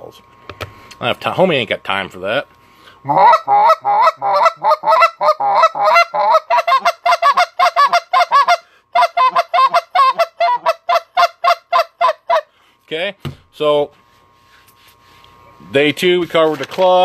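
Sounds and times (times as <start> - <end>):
goose call honking notes: 3.1 - 12.5.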